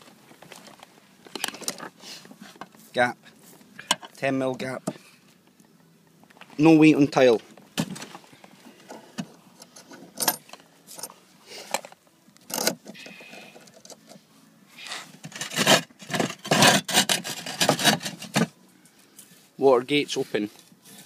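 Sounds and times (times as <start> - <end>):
roof tile scraping and knocking: 15.1 - 18.6.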